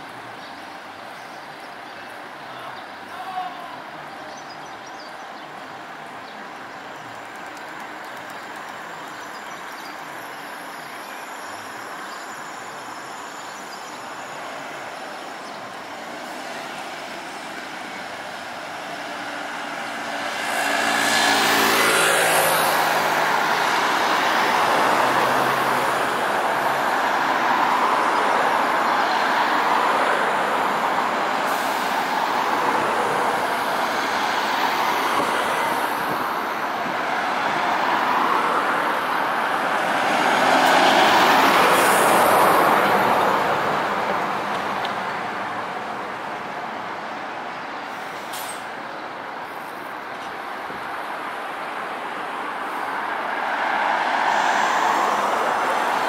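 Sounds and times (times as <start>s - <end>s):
road traffic: 0.0s - 56.0s
vehicle passing close by: 19.1s - 26.5s.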